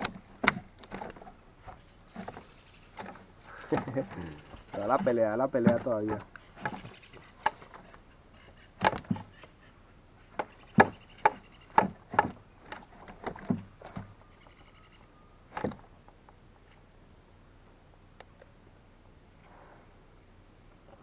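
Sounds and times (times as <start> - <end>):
fish slapping canoe hull: 0.0 - 8.1, 8.8 - 9.4, 10.3 - 14.2, 15.5 - 15.8.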